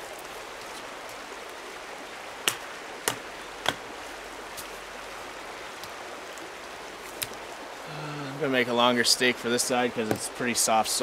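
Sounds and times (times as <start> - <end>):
running water rushing: 0.0 - 11.0
axe striking wooden stake: 2.4 - 3.8.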